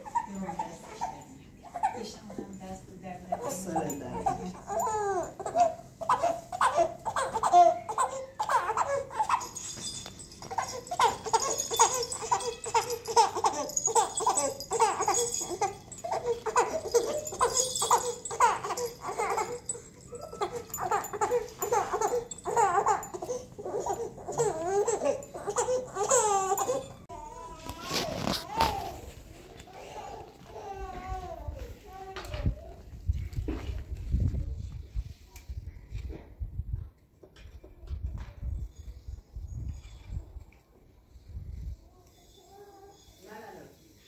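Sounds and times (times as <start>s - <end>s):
baby laughing and babbling: 4.2s - 9.7s, 10.4s - 29.1s.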